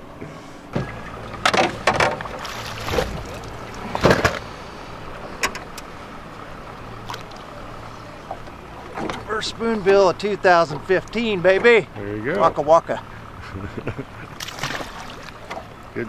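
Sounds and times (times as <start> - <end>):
steady low hum: 0.0 - 16.0
fish splashing and knocking: 0.8 - 4.5, 14.4 - 15.7.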